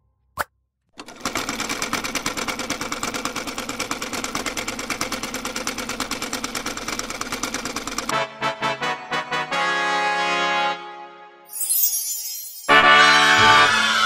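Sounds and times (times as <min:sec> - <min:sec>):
sewing machine running: 0:01.0 - 0:08.1
short musical notes: 0:08.1 - 0:14.0.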